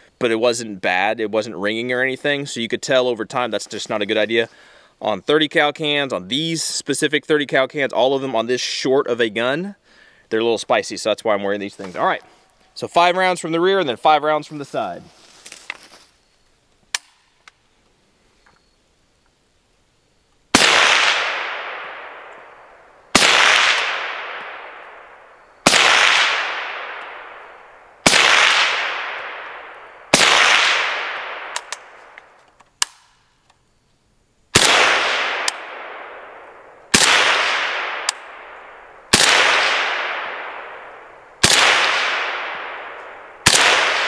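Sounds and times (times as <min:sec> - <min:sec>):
suppressed pistol shots: 0:20.6 - 0:33.3, 0:34.5 - 0:44.0.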